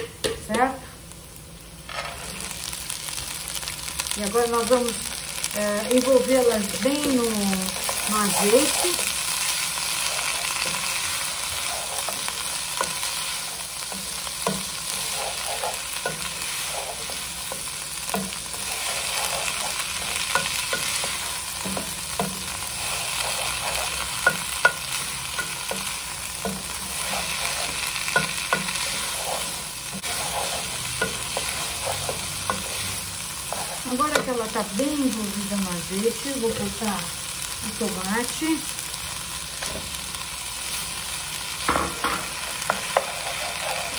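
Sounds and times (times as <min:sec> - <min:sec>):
food sizzling in pan: 0:00.0 - 0:43.9
wooden spoon scraping pan: 0:07.7 - 0:09.2, 0:10.0 - 0:24.8, 0:25.4 - 0:34.5, 0:42.6 - 0:43.9.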